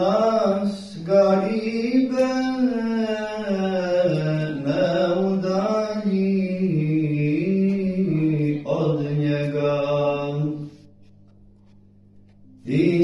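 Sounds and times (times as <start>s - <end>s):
man chanting: 0.0s - 10.7s, 12.6s - 13.0s.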